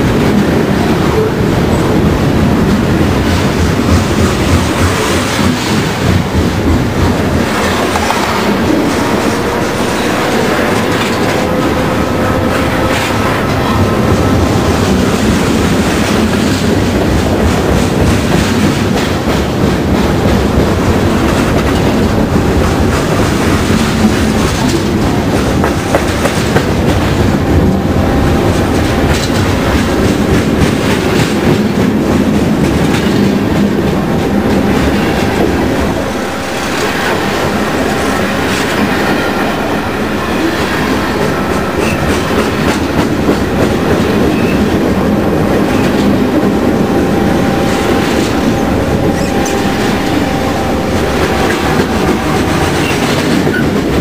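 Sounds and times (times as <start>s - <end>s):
wheels clickety-clack over rail: 0.0s - 39.3s, 40.9s - 54.0s
freight train wheels rumbling: 0.0s - 54.0s.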